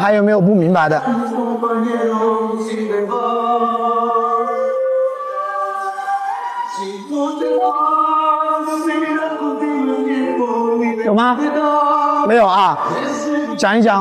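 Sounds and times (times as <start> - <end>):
choir singing held notes: 0.6 - 13.8.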